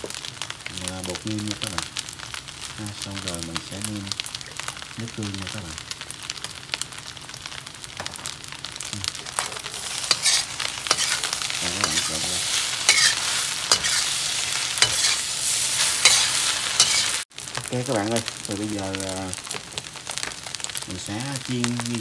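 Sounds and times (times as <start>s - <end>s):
rice sizzling in a wok: 0.0s - 22.0s
metal utensil scraping a pan: 9.2s - 17.2s.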